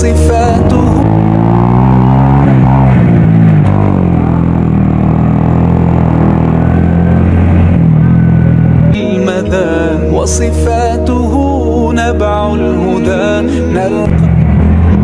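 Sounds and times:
sung vocal music: 0:00.0 - 0:01.2, 0:08.9 - 0:14.3
small motorcycle engine running: 0:00.0 - 0:09.0, 0:14.1 - 0:15.0.

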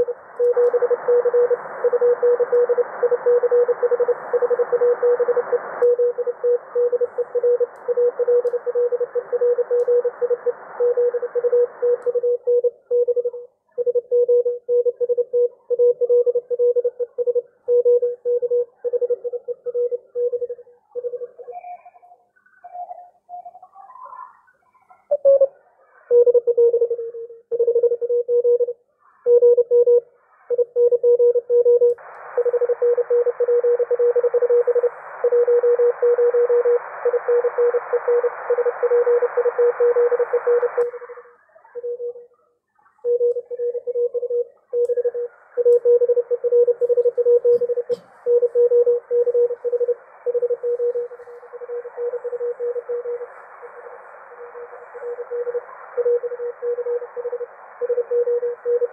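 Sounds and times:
morse code beeps: 0:43.1 - 0:53.3, 0:54.4 - 0:58.9
radio band hiss: 0:49.5 - 0:58.6.

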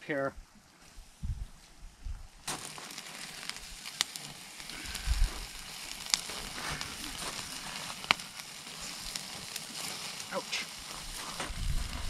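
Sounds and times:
sharp pops: 0:02.4 - 0:12.0
steaks sizzling on grill: 0:02.4 - 0:12.0.

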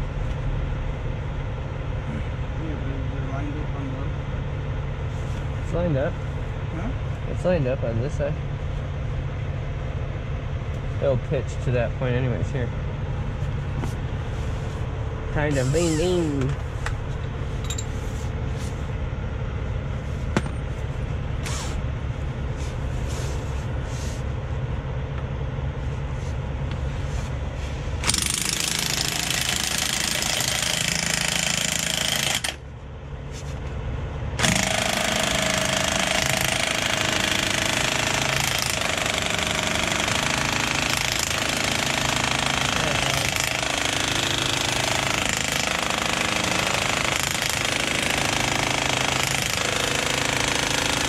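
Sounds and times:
impact wrench hammering: 0:17.6 - 0:18.0, 0:20.3 - 0:20.8, 0:28.0 - 0:32.6, 0:34.4 - 0:51.0.

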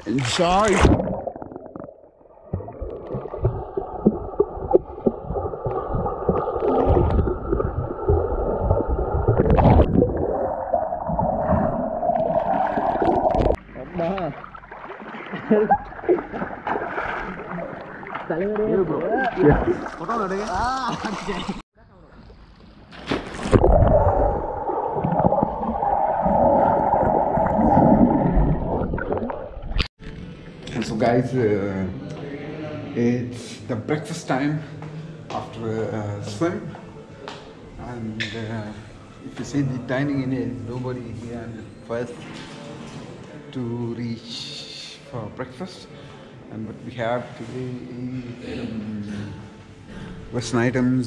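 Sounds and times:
person splashing into pool: 0:00.2 - 0:01.8, 0:02.4 - 0:13.6, 0:14.7 - 0:21.4, 0:22.9 - 0:29.8
rush of bubbles: 0:00.6 - 0:18.3, 0:23.3 - 0:29.8
underwater bubbling and gurgling: 0:00.8 - 0:18.3, 0:23.5 - 0:29.9.

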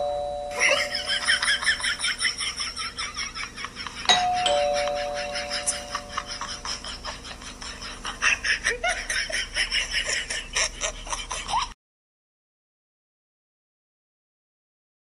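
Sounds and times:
two-tone doorbell chime: 0:00.0 - 0:01.6, 0:04.1 - 0:06.4
laughter: 0:00.5 - 0:11.8.

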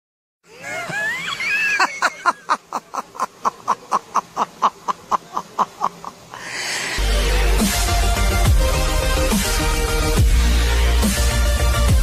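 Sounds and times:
man laughing: 0:00.5 - 0:06.6
rush of noise: 0:00.6 - 0:08.1.

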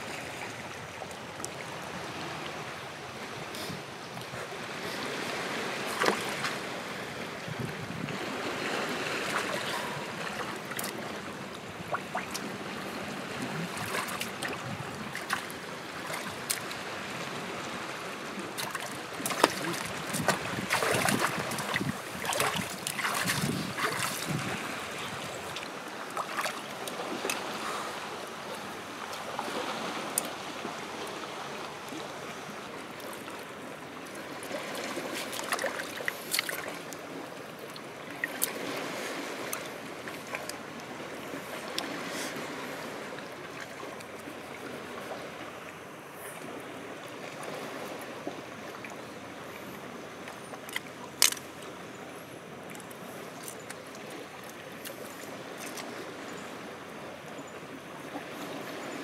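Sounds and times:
seawater splashing around rocks: 0:04.8 - 0:06.9, 0:07.9 - 0:32.0, 0:34.1 - 0:40.6.

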